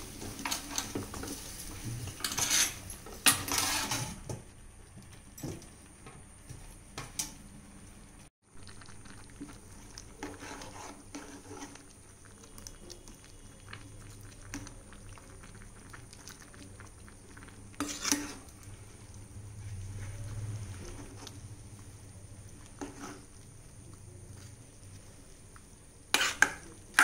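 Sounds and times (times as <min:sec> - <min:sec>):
spoon scraping metal pot: 0:00.3 - 0:01.5, 0:02.1 - 0:04.2, 0:10.2 - 0:11.9, 0:17.7 - 0:18.6, 0:22.6 - 0:23.4, 0:26.1 - 0:27.0
juices bubbling: 0:08.0 - 0:27.0.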